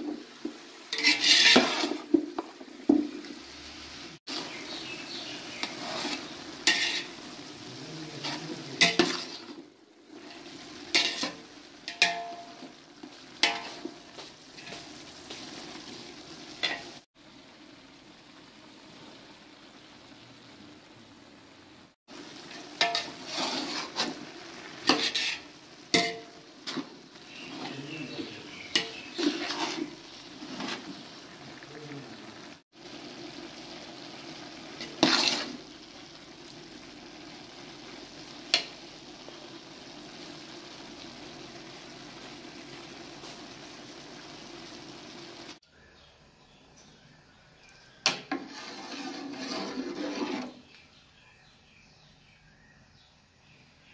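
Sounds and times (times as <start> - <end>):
food sizzling in a pot: 0.0 - 45.9, 46.5 - 52.3
metal spatula scraping pot: 0.9 - 2.2, 4.7 - 7.4, 8.1 - 9.6, 10.2 - 12.7, 13.4 - 16.0, 16.6 - 17.0, 22.4 - 31.1, 34.8 - 35.6, 48.0 - 50.8.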